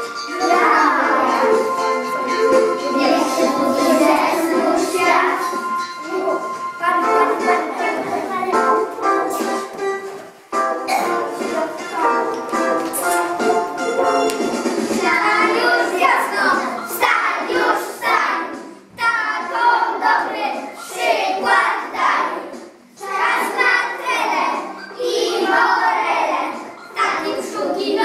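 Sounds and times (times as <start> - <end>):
children singing together: 0.0 - 28.0.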